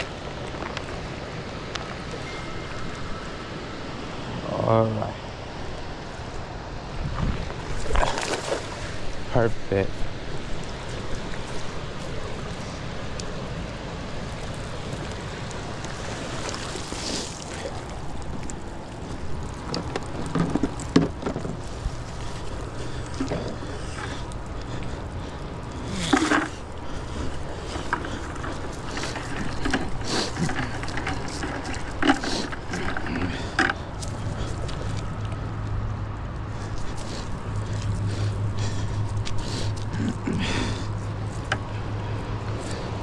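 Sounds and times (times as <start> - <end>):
churning river water: 0.0 - 43.0
wind on microphone: 6.7 - 9.2
knocks and splashes: 7.7 - 9.0, 15.4 - 22.4.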